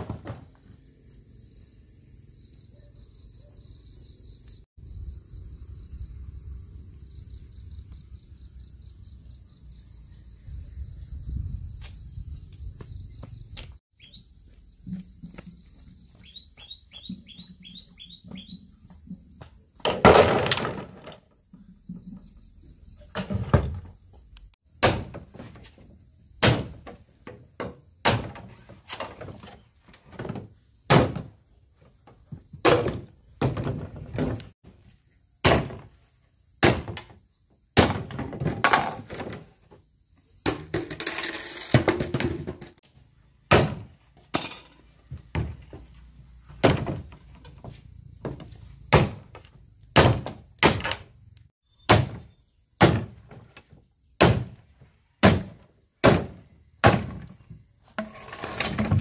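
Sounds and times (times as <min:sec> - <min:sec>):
sharp knocks and thuds: 0:00.0 - 0:00.7, 0:24.8 - 0:31.4, 0:35.4 - 0:36.0, 0:36.6 - 0:37.2, 0:37.8 - 0:39.8, 0:43.5 - 0:44.3, 0:45.0 - 0:51.1, 0:51.9 - 0:54.6, 0:55.2 - 0:59.0.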